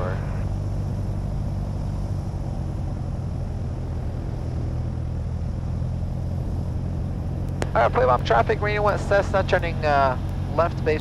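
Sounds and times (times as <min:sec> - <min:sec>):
airplane engine drone: 0:00.0 - 0:11.0.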